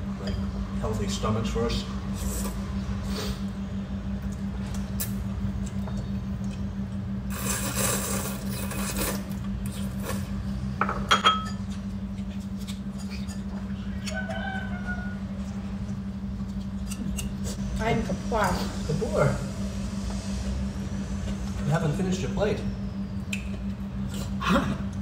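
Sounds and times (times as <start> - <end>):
steady low hum: 0.0 - 25.0
noodles being slurped: 7.3 - 10.3
tableware clatter: 10.8 - 11.6.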